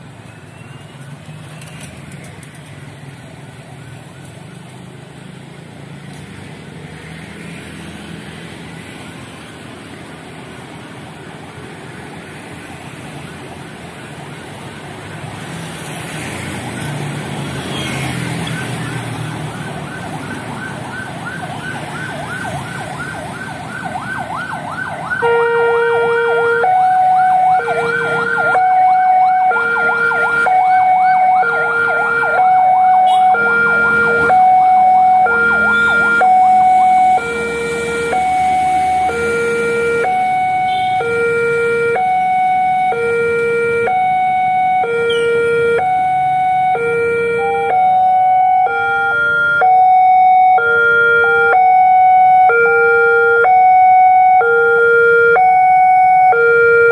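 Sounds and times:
two-tone alarm: 25.1 - 56.9
fast warbling chirp alarm: 26.7 - 38.9.

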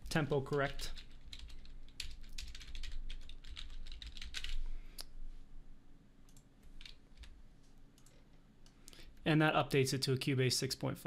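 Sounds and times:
typing on computer keyboard: 0.5 - 4.6.

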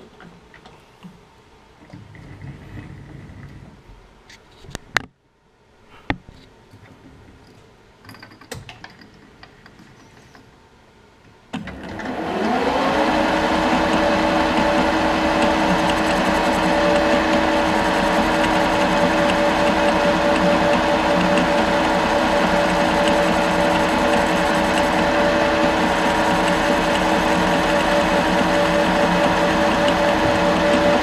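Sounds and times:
lathe spindle whining: 11.6 - 31.0
tool cutting metal chips: 13.1 - 31.0.

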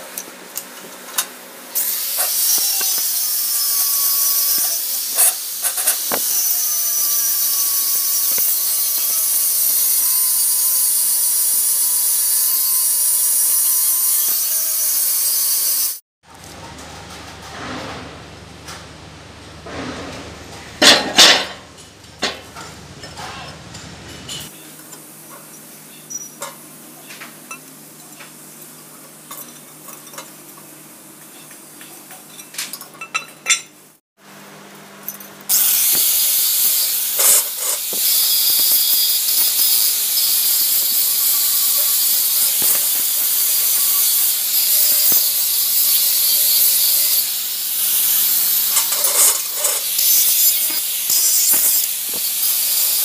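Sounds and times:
arc welding sizzling hiss: 1.7 - 16.0, 35.5 - 53.0.

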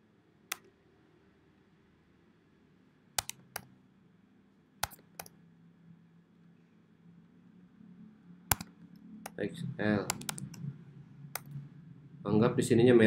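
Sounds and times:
faint low hum: 0.0 - 13.0
computer keyboard taps: 3.2 - 3.7, 8.5 - 9.4, 10.1 - 10.6.

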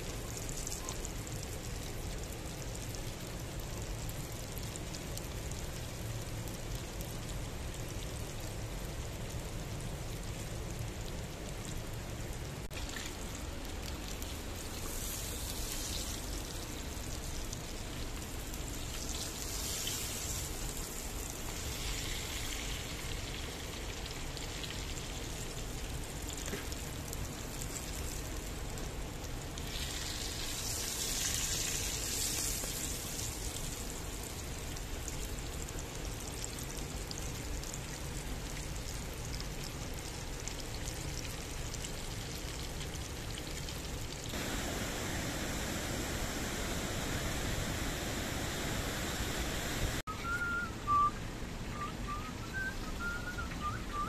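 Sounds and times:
hot oil sizzling: 12.6 - 51.1.

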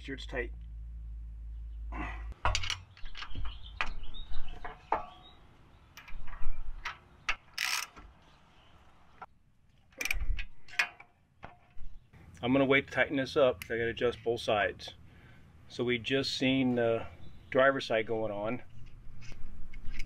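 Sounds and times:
wrench and bolt clicking: 6.8 - 8.0.

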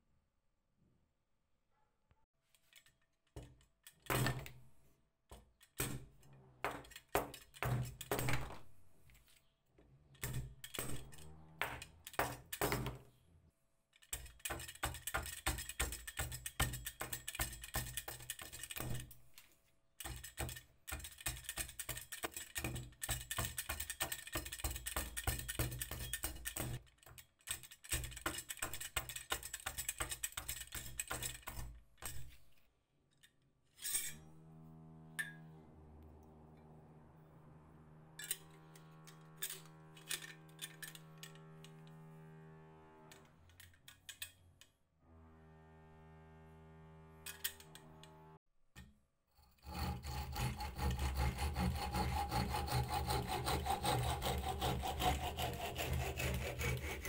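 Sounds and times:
hatchet shaving wooden stick: 14.0 - 19.1, 20.0 - 32.5, 49.4 - 57.0.

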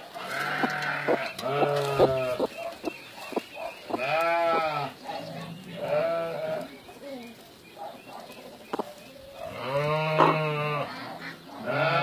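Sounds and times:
farm animal bleating: 0.2 - 2.5, 3.9 - 6.8, 9.4 - 12.0.

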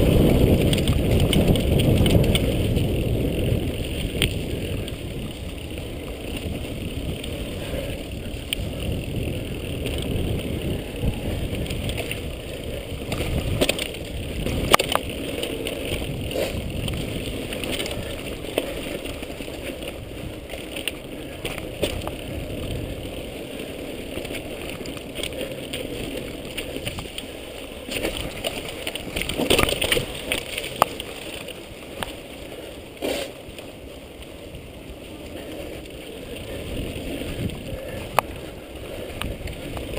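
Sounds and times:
wind on microphone: 0.0 - 31.4, 34.6 - 39.9
bike clicks and rattles: 0.0 - 39.9
bike tyres rumbling over dirt: 0.0 - 39.9.

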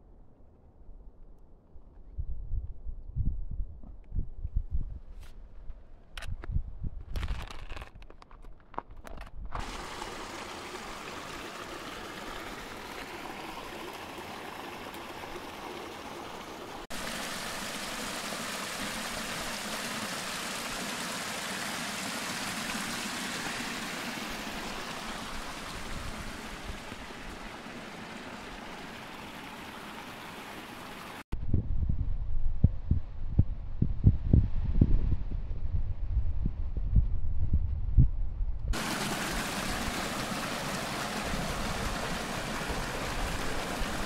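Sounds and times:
creek water rushing: 9.6 - 31.2, 38.8 - 44.0.

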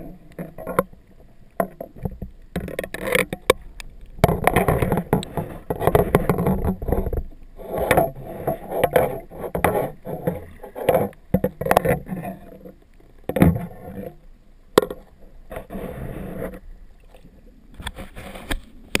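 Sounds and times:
muffled surging water: 0.0 - 19.0.

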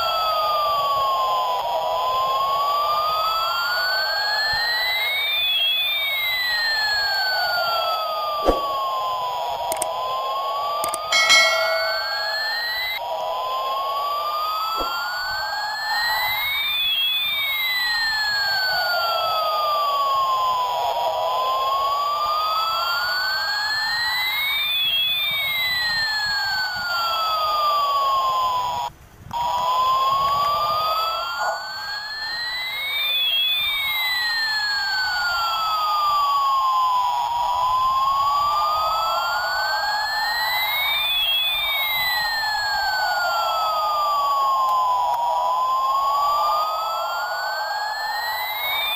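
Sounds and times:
electronic siren wail: 29.4 - 36.0.

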